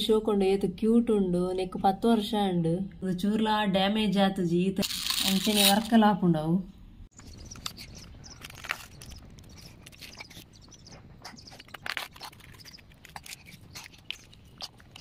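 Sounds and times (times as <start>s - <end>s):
plastic toys scraping through dirt: 4.8s - 5.9s.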